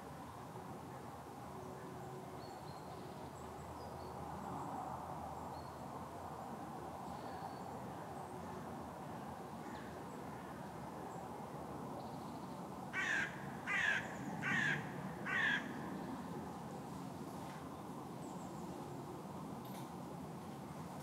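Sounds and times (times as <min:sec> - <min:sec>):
crow cawing: 0:12.9 - 0:15.7.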